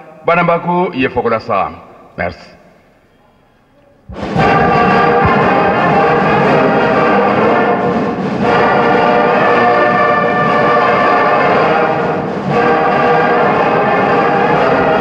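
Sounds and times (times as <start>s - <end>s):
brass band playing chords: 4.0s - 15.0s.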